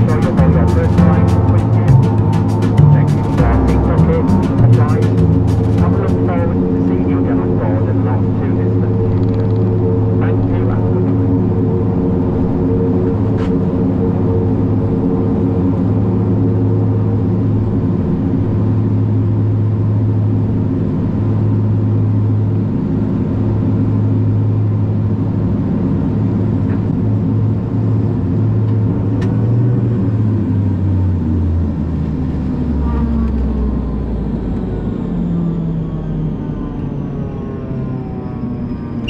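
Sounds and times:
turbine whine spooling down: 0.0s - 20.3s, 29.8s - 39.0s
turboprop engines droning: 0.0s - 39.0s.

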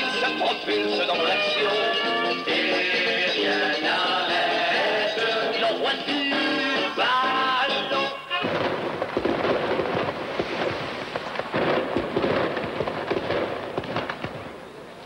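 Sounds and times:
fireworks crackling: 5.8s - 15.0s
loud firework pops: 8.4s - 14.6s.

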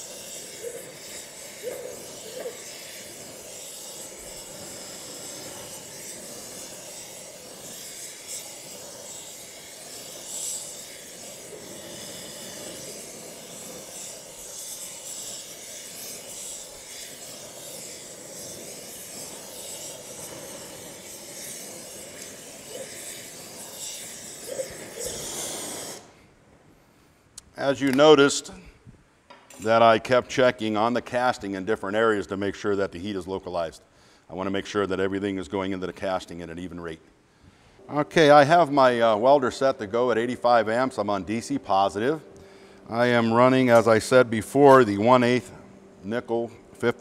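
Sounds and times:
torch flame hissing: 0.0s - 26.4s, 37.8s - 47.0s.

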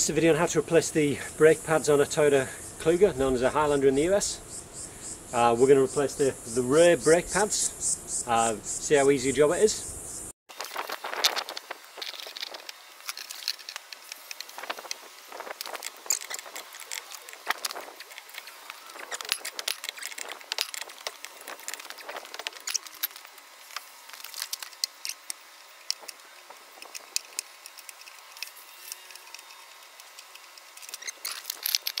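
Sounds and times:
metal tools clinking and scraping: 15.6s - 23.4s, 26.8s - 32.0s.

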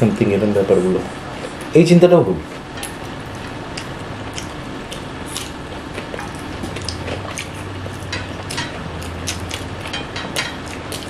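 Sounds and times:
low steady hum: 0.0s - 11.0s
wet chewing: 2.5s - 11.0s.

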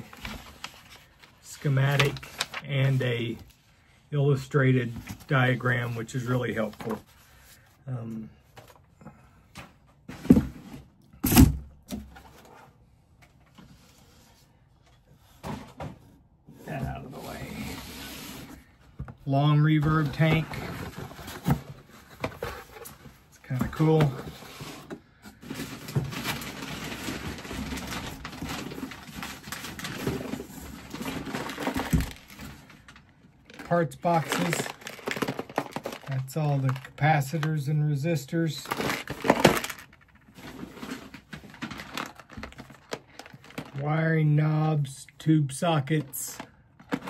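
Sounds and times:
packing paper and cardboard rustling: 0.0s - 3.6s, 16.7s - 44.7s, 45.6s - 47.0s
cardboard scraping rustles: 38.7s - 43.7s.

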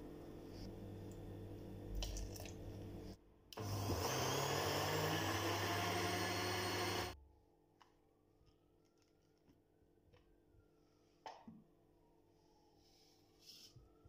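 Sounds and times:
blender whining: 3.6s - 7.2s.

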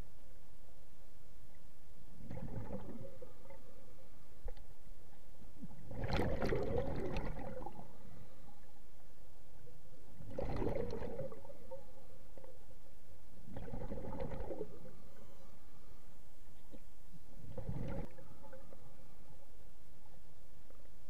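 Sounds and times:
underwater air bubbles gurgling: 2.2s - 3.9s, 5.6s - 8.1s, 10.2s - 12.6s, 13.4s - 15.2s, 17.4s - 19.0s.

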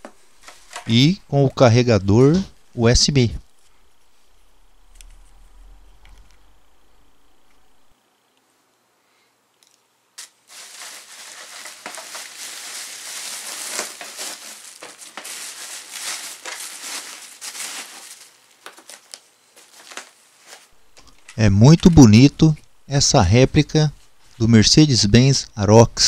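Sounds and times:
bubble wrap crinkling: 10.2s - 22.1s.

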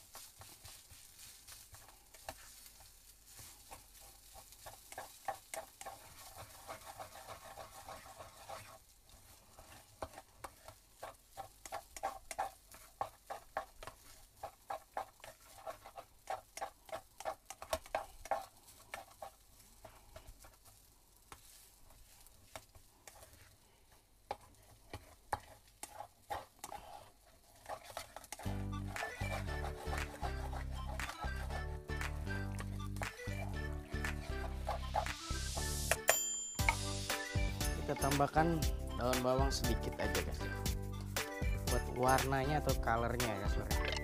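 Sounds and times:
faint frying sizzle: 0.0s - 35.9s
spatula scraping a metal pot: 3.7s - 8.8s, 9.5s - 20.6s, 24.3s - 31.7s, 32.6s - 35.7s.

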